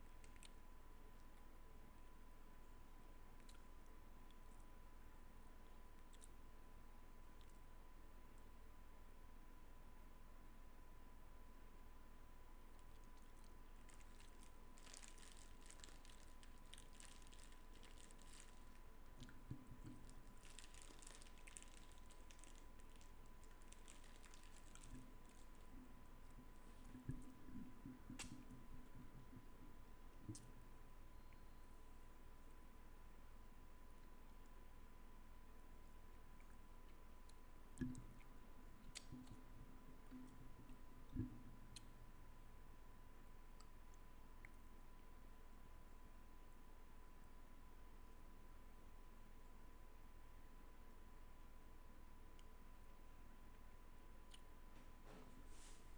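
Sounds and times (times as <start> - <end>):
faint steady tone: 0.0 - 55.9
faint steady high tone: 30.9 - 32.2.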